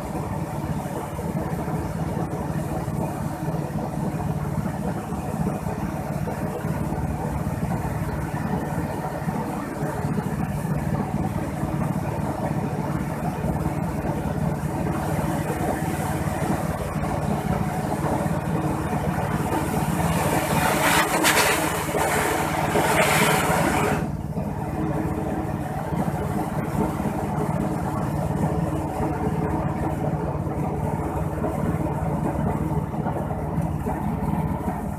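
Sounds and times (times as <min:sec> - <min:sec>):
coffee huller running: 0:16.9 - 0:24.1
loud hissing rush: 0:19.3 - 0:24.1
beans pouring from chute: 0:20.7 - 0:23.7.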